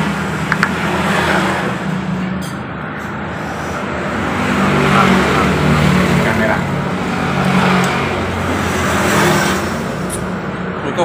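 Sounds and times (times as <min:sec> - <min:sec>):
vehicle engine running close by: 0:00.0 - 0:02.4
road traffic: 0:00.0 - 0:11.0.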